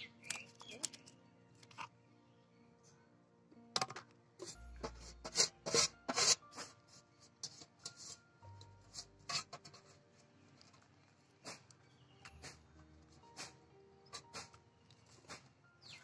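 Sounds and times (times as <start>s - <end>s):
faint background music: 0.0s - 16.0s
knife scraping fish scales: 4.4s - 8.2s, 8.9s - 9.8s.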